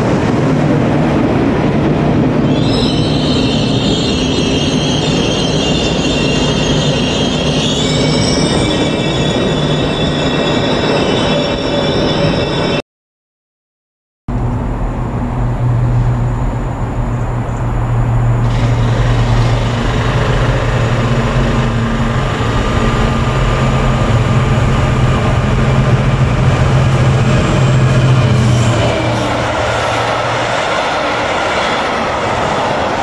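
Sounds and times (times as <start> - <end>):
diesel locomotive passing: 0.0 - 12.8, 14.3 - 33.0.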